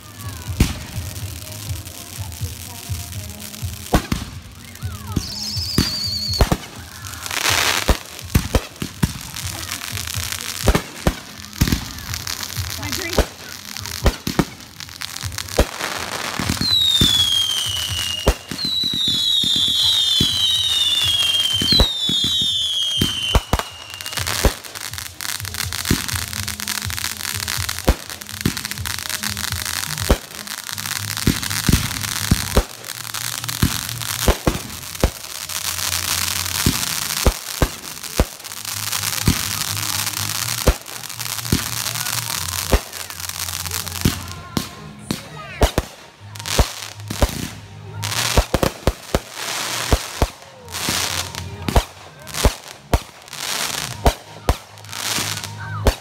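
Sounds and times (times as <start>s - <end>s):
fireworks bangs and crackling: 0.0s - 56.0s
fireworks whistles falling in pitch: 4.7s - 8.1s, 16.4s - 24.6s.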